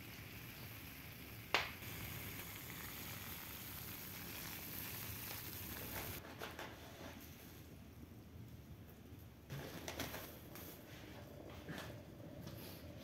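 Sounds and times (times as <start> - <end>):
kettle steam hissing: 0.0 - 6.2.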